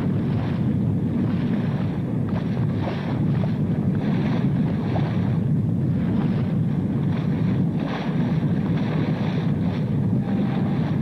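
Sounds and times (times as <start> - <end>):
rushing sea water: 0.0 - 11.0
wind: 0.0 - 11.0.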